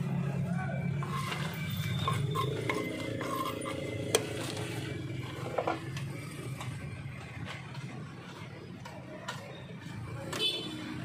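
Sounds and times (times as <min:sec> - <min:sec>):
crackers scraping on wooden board: 0:01.0 - 0:08.7.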